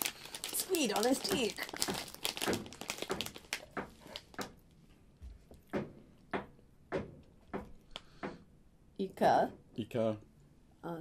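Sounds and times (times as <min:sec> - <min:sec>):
plastic packet crinkling: 0:00.0 - 0:04.6.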